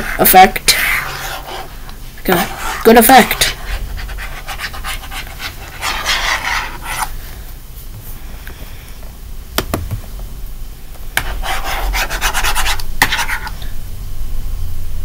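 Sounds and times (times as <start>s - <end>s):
rubbing and scratching: 0.0s - 1.7s, 2.3s - 7.1s, 11.2s - 13.6s.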